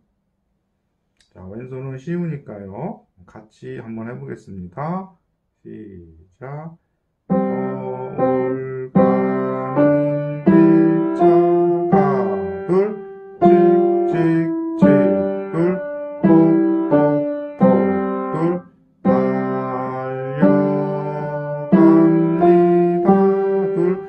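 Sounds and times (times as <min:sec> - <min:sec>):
piano playing children's song: 0:07.3 - 0:24.0.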